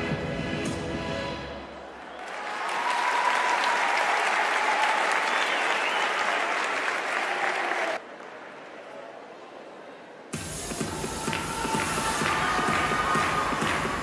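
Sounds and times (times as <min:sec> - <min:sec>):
crowd applauding: 0:01.8 - 0:09.0, 0:10.8 - 0:14.0.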